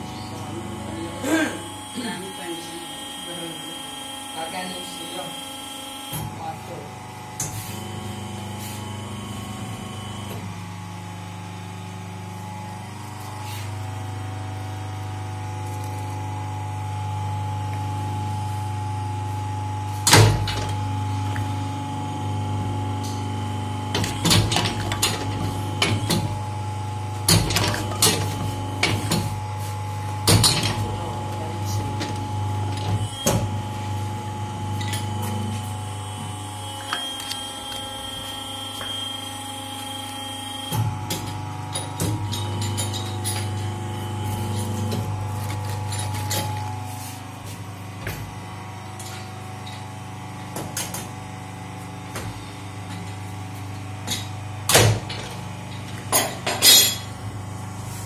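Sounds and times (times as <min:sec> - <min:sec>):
moulding machine humming: 0:00.0 - 0:56.5.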